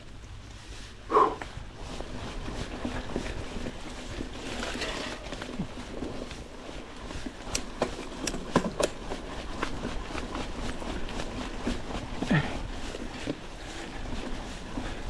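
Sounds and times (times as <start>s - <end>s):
bike frame rattling: 1.9s - 15.0s
bike knocks and clatters: 7.2s - 9.7s.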